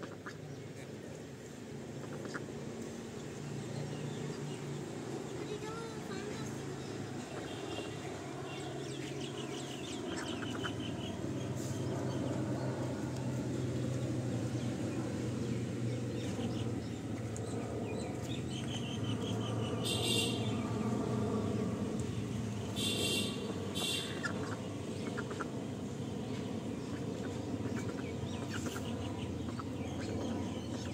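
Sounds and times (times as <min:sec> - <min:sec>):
steady low hum: 0:00.0 - 0:30.9
poultry chirping calls: 0:09.7 - 0:11.0, 0:26.8 - 0:30.9.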